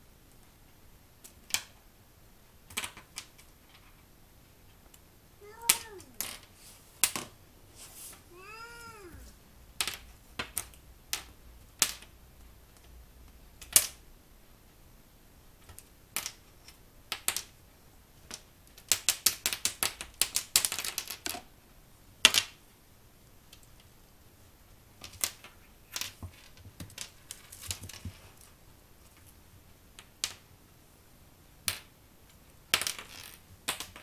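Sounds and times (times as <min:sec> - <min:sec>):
kitten meowing: 0:05.4 - 0:06.2, 0:08.3 - 0:09.3
clicks and taps on a hard floor: 0:25.0 - 0:29.3.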